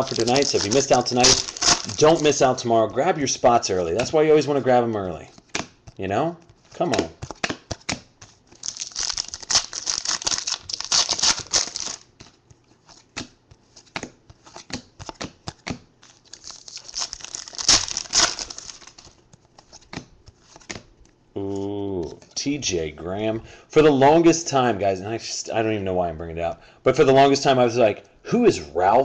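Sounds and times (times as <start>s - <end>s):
wrappers crinkling and tearing: 0.0s - 2.6s, 8.5s - 12.1s, 16.0s - 19.2s
cards flipped by hand: 5.3s - 21.2s.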